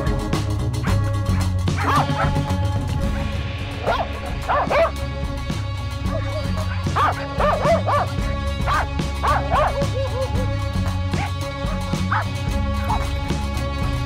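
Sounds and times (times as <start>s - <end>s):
background music with bass: 0.0s - 14.0s
dogs barking and yelping: 0.8s - 2.5s, 3.8s - 5.0s, 6.0s - 13.2s.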